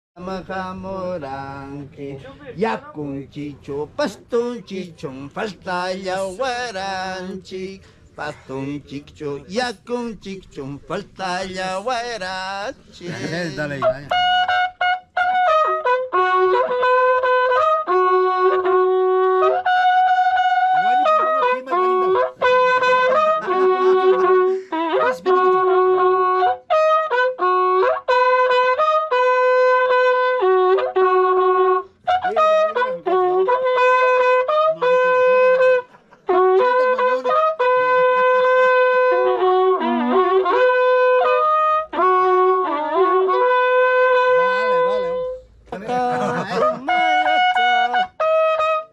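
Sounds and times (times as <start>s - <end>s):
horn trumpet melody: 4.4s - 7.7s, 9.9s - 48.9s
player breathing: 7.8s - 8.6s, 24.4s - 24.9s.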